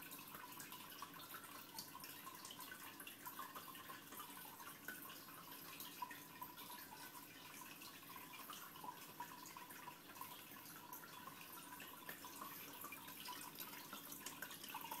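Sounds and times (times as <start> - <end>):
aquarium water trickling: 0.0 - 15.0
drips and bubble pops: 8.4 - 15.0.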